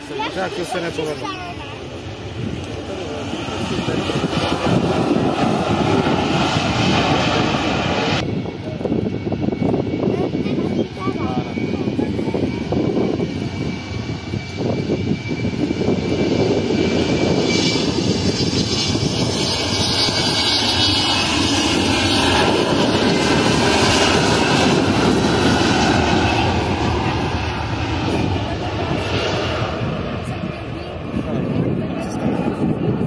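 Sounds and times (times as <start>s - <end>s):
airplane engines rumbling: 0.0s - 33.0s.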